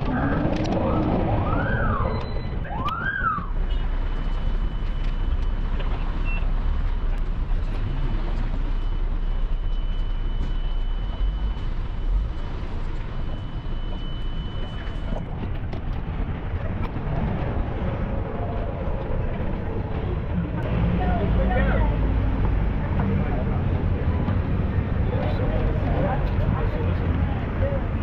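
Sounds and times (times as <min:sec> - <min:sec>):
siren whoops: 0:00.0 - 0:03.6
street noise with low rumble: 0:00.0 - 0:28.0.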